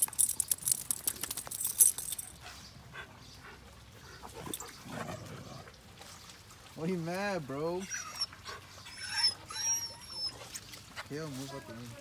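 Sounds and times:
collar tags jingling: 0:00.0 - 0:02.6
dog whimpering: 0:07.8 - 0:10.5.

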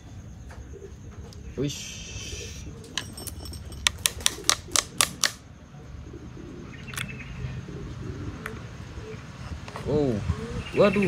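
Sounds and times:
sharp plastic clicks: 0:03.8 - 0:05.4.

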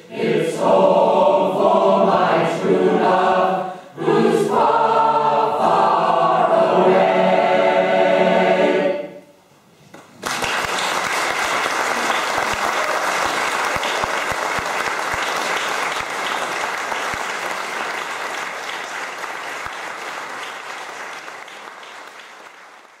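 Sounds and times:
audience applauding: 0:10.0 - 0:23.0.

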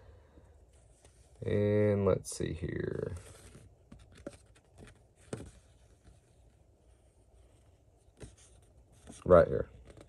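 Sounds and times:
soft paper crackles: 0:02.6 - 0:10.0.

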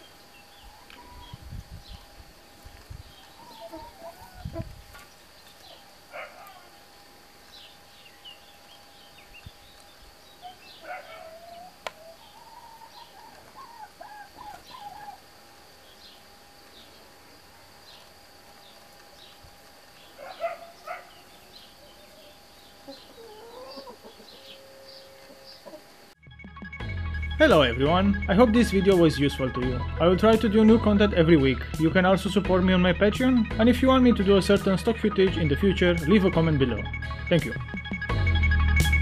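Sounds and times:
chickens clucking: 0:00.0 - 0:02.0, 0:02.6 - 0:06.8, 0:09.4 - 0:26.1.

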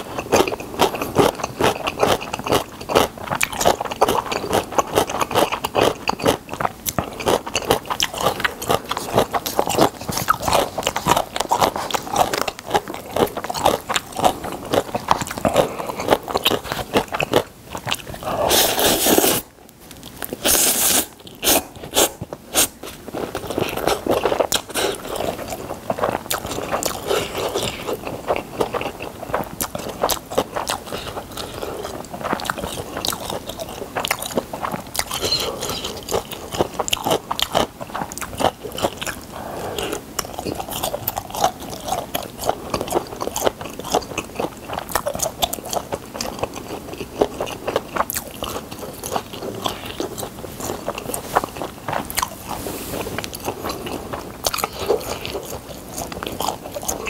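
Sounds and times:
mouth chewing noodles: 0:00.0 - 0:57.0
loud noodle slurps: 0:18.3 - 0:19.4, 0:20.4 - 0:22.8.

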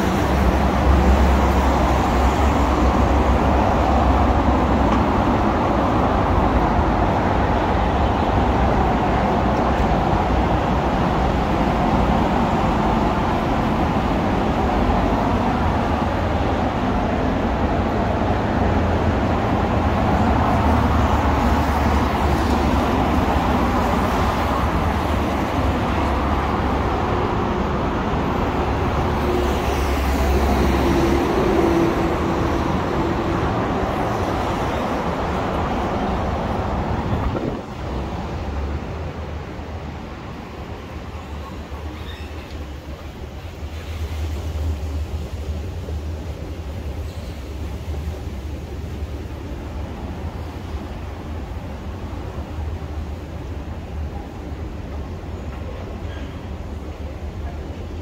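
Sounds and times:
heavy highway traffic: 0:00.0 - 0:58.0.

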